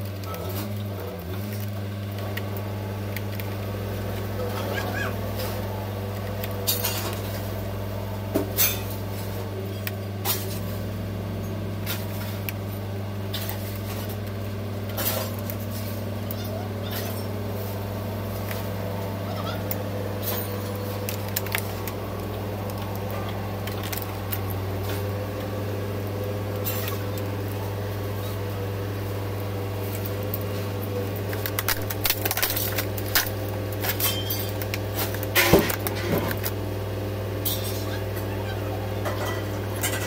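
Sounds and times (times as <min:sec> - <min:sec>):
steady low hum: 0:00.0 - 0:40.0
small plastic and metal parts clattering: 0:31.3 - 0:36.5.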